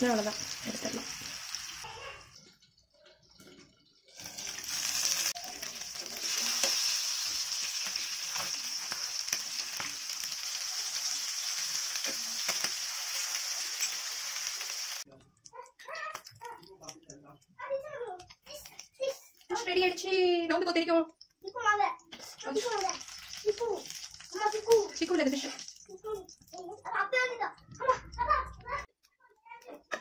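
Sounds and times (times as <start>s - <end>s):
fish sizzling in hot oil: 0.0s - 2.4s, 3.4s - 15.1s, 21.5s - 26.6s.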